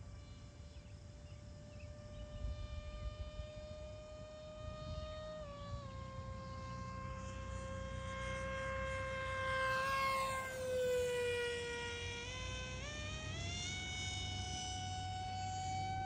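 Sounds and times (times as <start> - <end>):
electric motor and propeller whine: 0.0 - 16.0.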